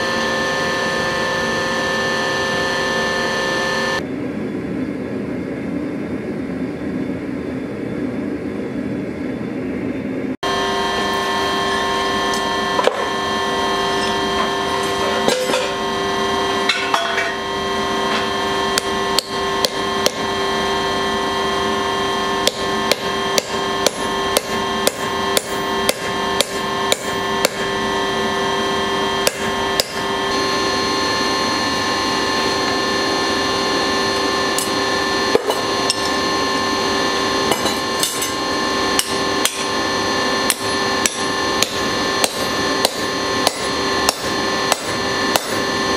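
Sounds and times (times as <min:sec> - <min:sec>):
steady hum: 0:00.0 - 0:45.9
hammer striking steel on anvil: 0:13.9 - 0:15.8, 0:16.6 - 0:17.4, 0:18.1 - 0:20.3, 0:22.4 - 0:27.7, 0:29.2 - 0:30.0, 0:34.6 - 0:36.2, 0:37.5 - 0:38.4, 0:39.0 - 0:39.7, 0:40.5 - 0:45.6.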